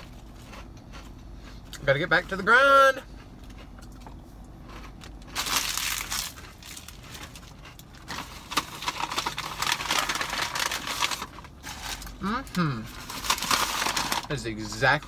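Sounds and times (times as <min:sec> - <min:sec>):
snack bag crinkling: 0:03.4 - 0:15.0
paper bag rustling: 0:08.1 - 0:14.4.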